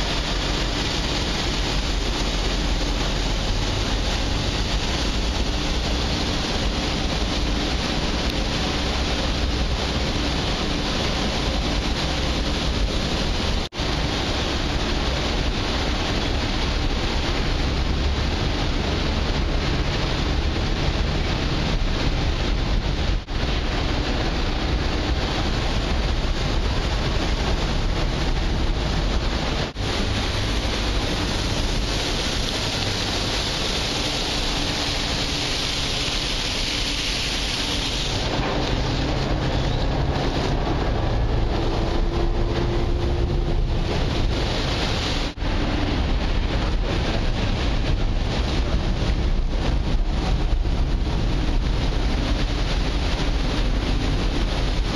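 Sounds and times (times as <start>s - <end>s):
ship engines rumbling: 0.0s - 54.9s
wind on microphone: 0.0s - 54.9s.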